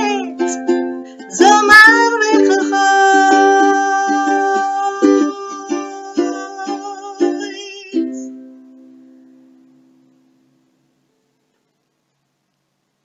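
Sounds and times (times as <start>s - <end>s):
strummed ukulele chords: 0.0s - 11.0s.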